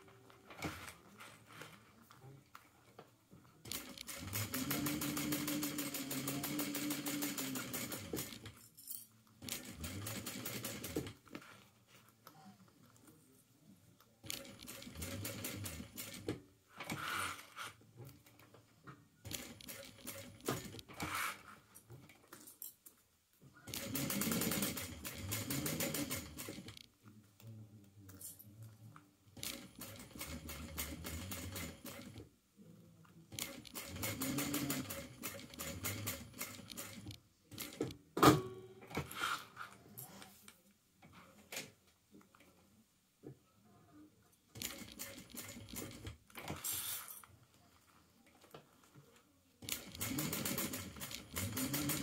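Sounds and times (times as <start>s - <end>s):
sewing machine stitching: 3.6s - 8.6s, 9.4s - 11.2s, 14.2s - 17.8s, 19.2s - 21.6s, 23.7s - 26.8s, 29.4s - 32.2s, 33.3s - 37.9s, 44.5s - 47.1s, 49.6s - 52.0s.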